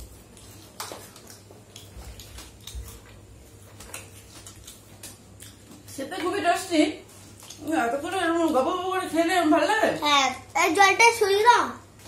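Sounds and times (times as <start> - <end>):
chewing and biting: 0.0 - 6.0, 7.2 - 8.6.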